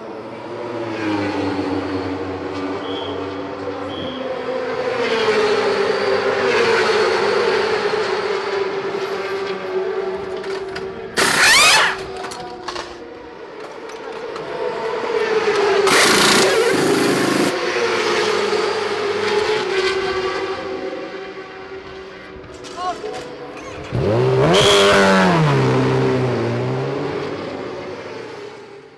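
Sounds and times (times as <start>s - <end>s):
racing motorcycle engine drone: 0.2s - 28.9s
pneumatic wheel gun bursts: 11.2s - 12.1s, 15.9s - 17.5s.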